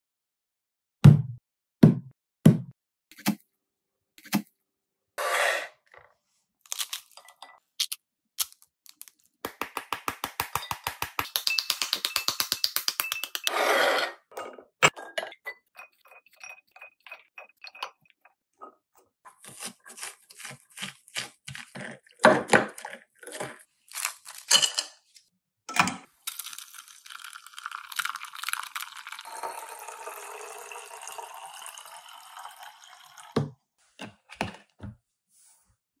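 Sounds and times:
ice cubes clinking against glass: 0:10.6 - 0:13.5.

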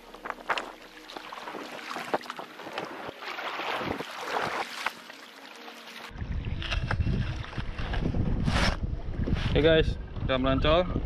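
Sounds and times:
paddle splashing into water: 0:00.0 - 0:06.7
water slapping against hull: 0:00.2 - 0:05.2
wind buffeting microphone: 0:06.2 - 0:11.0.

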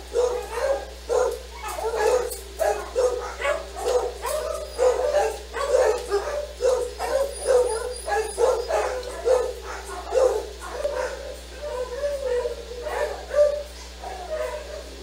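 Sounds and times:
dog barking in high yaps: 0:00.1 - 0:15.0.

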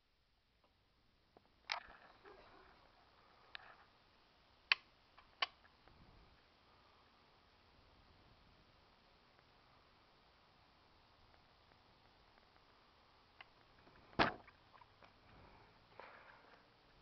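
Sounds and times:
sharp clicks: 0:04.7 - 0:05.7.

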